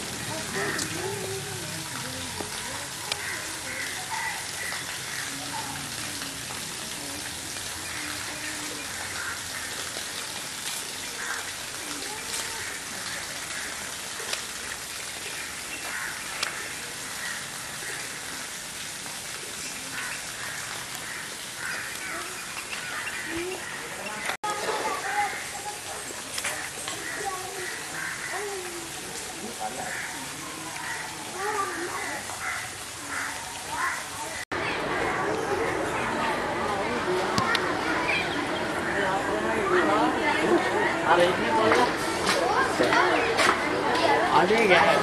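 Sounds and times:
faint voices: 0:19.2 - 0:45.0
birds calling: 0:19.6 - 0:24.4.

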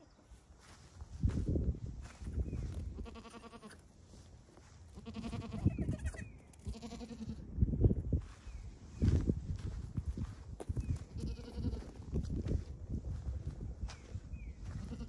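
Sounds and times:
goats bleating: 0:03.0 - 0:03.8, 0:05.0 - 0:07.4, 0:11.2 - 0:11.9.

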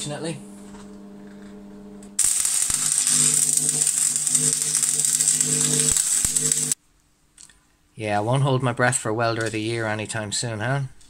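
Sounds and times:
low steady hum: 0:00.0 - 0:07.0
welding arc crackling: 0:02.2 - 0:06.8.

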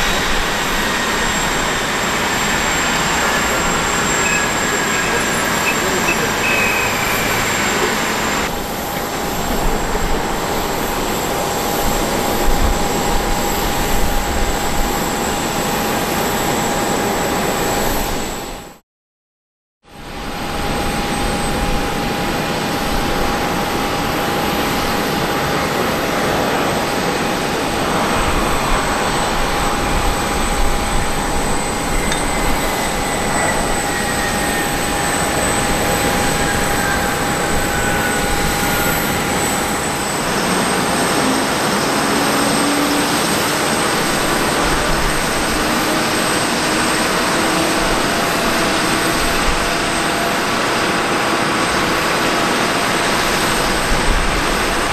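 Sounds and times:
jet engine roar with high whine: 0:00.0 - 0:18.8, 0:19.9 - 0:54.9.

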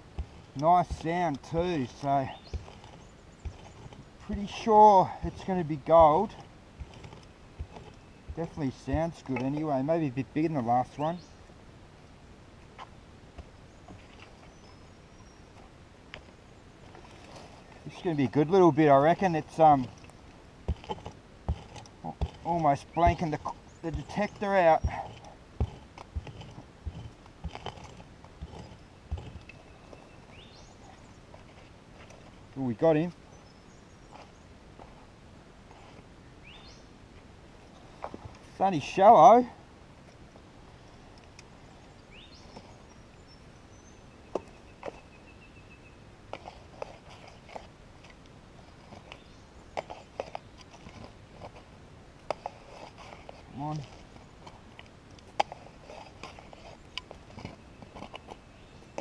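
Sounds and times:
pick chopping into gravelly soil: 0:00.0 - 0:09.8, 0:20.7 - 0:29.5
scraping soil: 0:00.0 - 0:11.2, 0:16.9 - 0:33.1, 0:46.3 - 0:59.0.

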